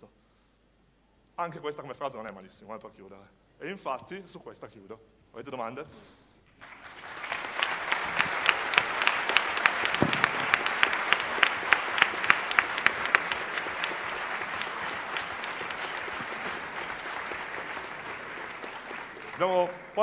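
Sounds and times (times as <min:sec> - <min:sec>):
audience applauding: 0:06.6 - 0:20.0
loud close claps: 0:06.6 - 0:20.0.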